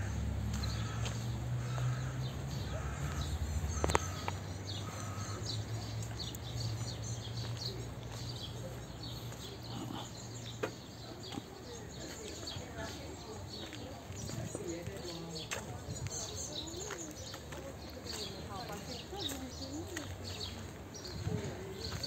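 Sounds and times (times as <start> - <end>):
crow cawing: 0.0 - 5.5
small birds chirping: 0.0 - 22.0.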